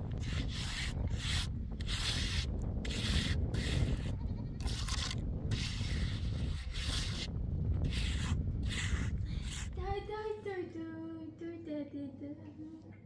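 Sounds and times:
low rumble: 0.0 - 10.3
scratchy rubbing: 0.1 - 9.8.

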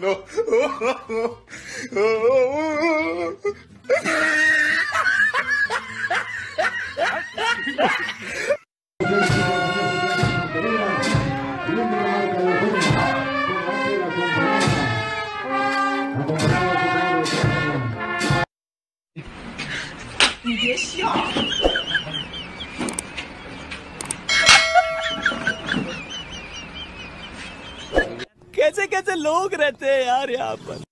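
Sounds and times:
man's sing-song voice: 9.0 - 14.8
brass band playing a march: 9.0 - 18.4.

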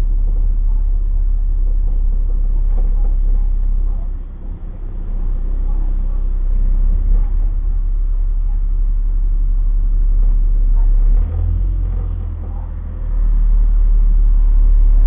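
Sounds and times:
bus engine rumble: 0.0 - 15.0.

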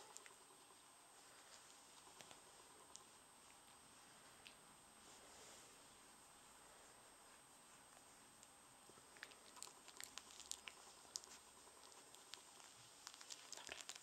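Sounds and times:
puppy mouthing clicks and smacks: 9.2 - 14.0.

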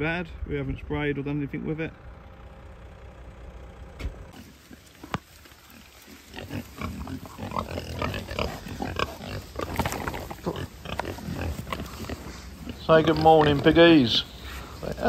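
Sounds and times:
pigs grunting: 4.3 - 15.0.

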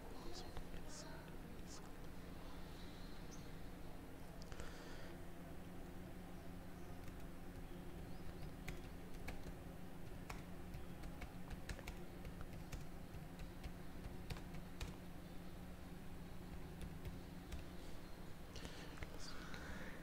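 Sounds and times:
keyboard typing clicks: 8.3 - 15.0, 16.5 - 17.8.

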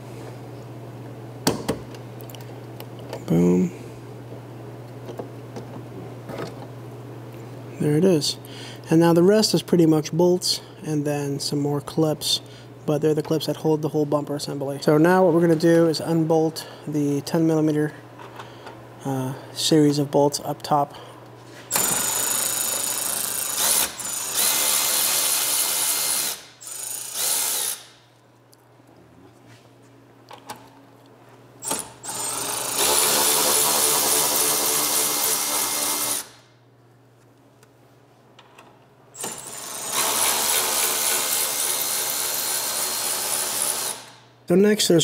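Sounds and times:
cordless ratchet whirring: 21.7 - 28.0, 39.2 - 44.2.

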